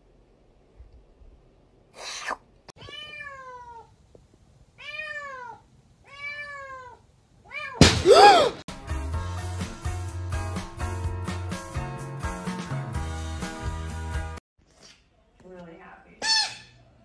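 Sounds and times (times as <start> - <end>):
cat meowing: 2.8 - 3.9, 4.8 - 7.8
cat yowling: 4.8 - 8.5.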